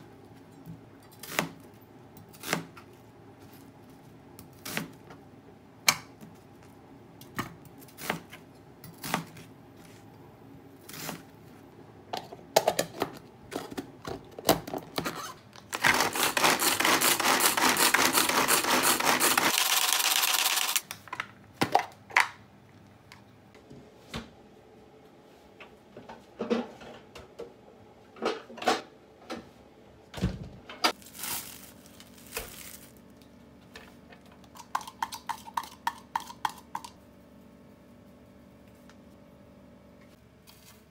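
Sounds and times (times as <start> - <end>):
manual food chopper whirring: 15.7 - 20.8.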